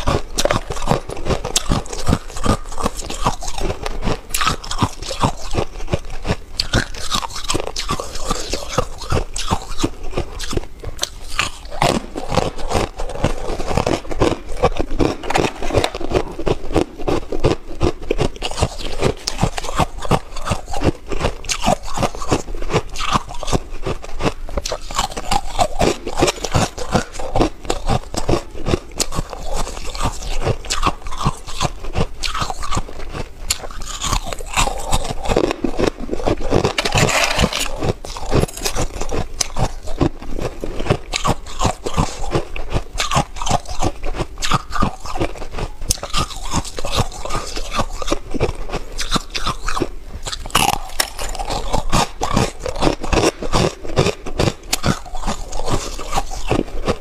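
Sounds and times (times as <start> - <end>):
chewing crunchy ice: 0.0 - 57.0.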